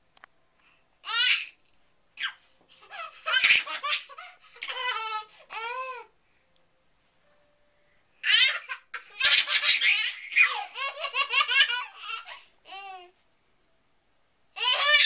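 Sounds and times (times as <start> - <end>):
babies laughing: 2.2 - 5.3, 8.2 - 12.5, 14.6 - 15.0.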